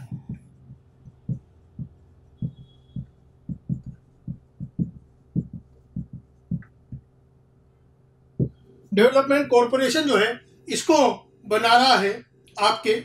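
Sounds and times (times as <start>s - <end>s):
faint steady hum: 0.0s - 13.0s
marker knocking on whiteboard: 1.2s - 7.1s.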